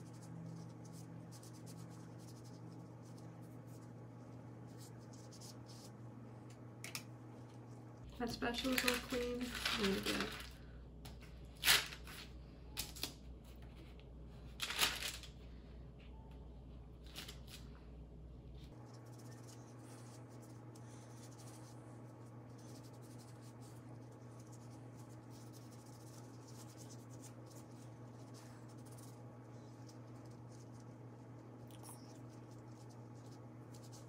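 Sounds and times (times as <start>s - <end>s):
faint room hum: 0.0s - 34.0s
foil packet crinkling: 8.5s - 10.6s.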